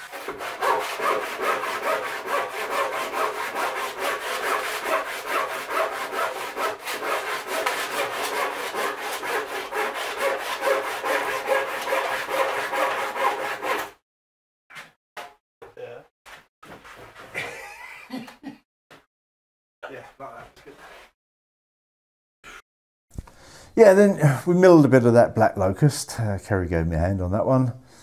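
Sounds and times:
handsaw rasping through wood: 0.0s - 14.0s.

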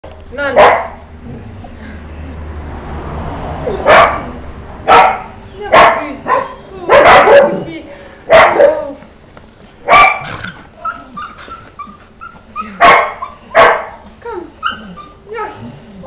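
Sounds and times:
puppies barking: 0.4s - 1.2s, 3.6s - 15.6s
puppy yips and whines: 8.0s - 15.6s.

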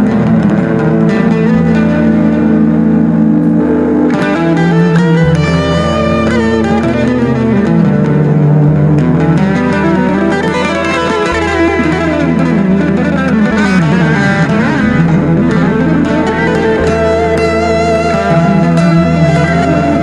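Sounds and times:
electric guitar fast runs: 0.0s - 20.0s
steady low bass note: 11.0s - 20.0s.

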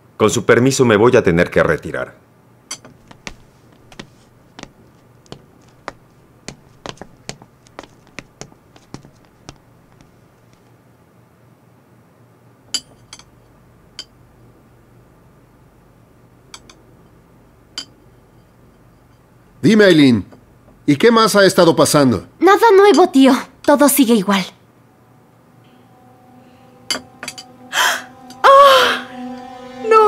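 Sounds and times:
cutlery and glasses clinking: 2.7s - 3.4s, 26.9s - 27.5s.

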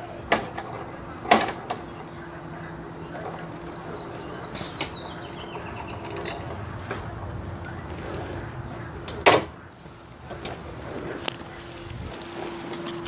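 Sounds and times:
motorcycle chain clunk: 3.2s - 7.8s.

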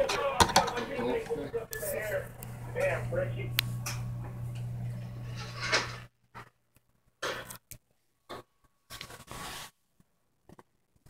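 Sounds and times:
steady low hum: 0.8s - 6.1s.

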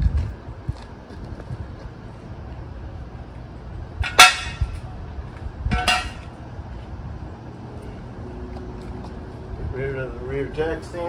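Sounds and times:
floor jack metallic clanks: 4.0s - 4.8s, 5.7s - 6.4s.

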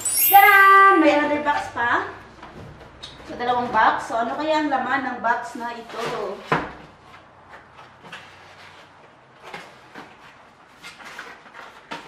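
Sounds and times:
cardboard flaps tapping and scraping: 5.8s - 12.0s.

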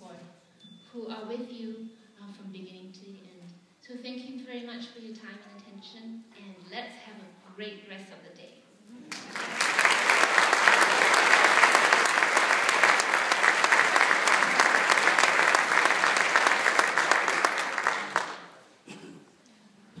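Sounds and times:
audience applauding: 9.1s - 18.6s.

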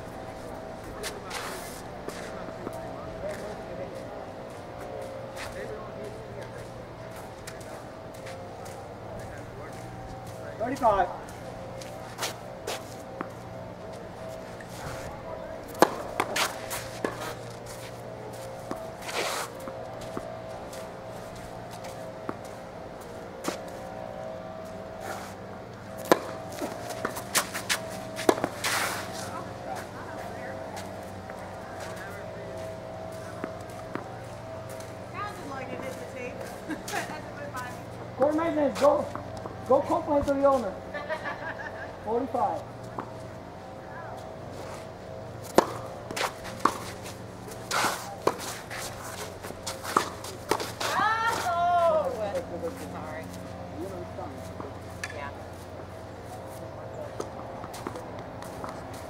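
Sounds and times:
shoe scuffing on court: 1.0s - 3.5s, 9.7s - 13.5s, 14.2s - 22.6s, 25.0s - 25.4s, 26.0s - 31.0s, 45.5s - 51.6s
racket hitting tennis ball: 14.6s - 22.6s, 23.3s - 23.8s, 25.0s - 31.2s, 45.4s - 52.2s
tennis ball bouncing: 15.6s - 23.8s, 25.9s - 37.2s, 45.4s - 52.9s, 54.4s - 55.2s.

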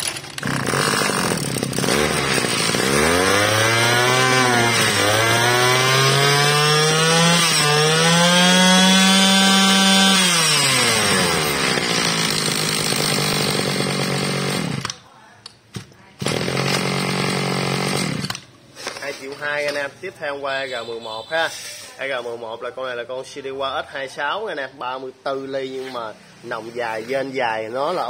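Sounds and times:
brush cutter engine revving: 0.0s - 15.0s, 16.2s - 18.5s.

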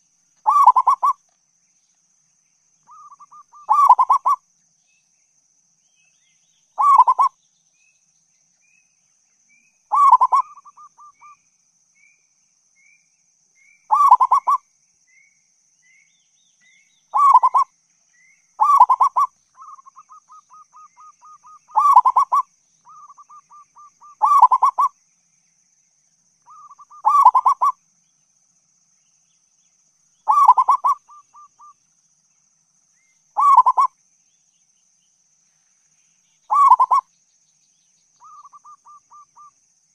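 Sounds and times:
dove cooing in trills: 0.4s - 1.2s, 2.9s - 4.4s, 6.8s - 7.4s, 9.9s - 11.3s, 13.9s - 14.6s, 17.1s - 17.7s, 18.6s - 24.9s, 26.5s - 27.8s, 30.2s - 31.7s, 33.4s - 33.9s, 36.5s - 37.1s, 38.2s - 39.5s.

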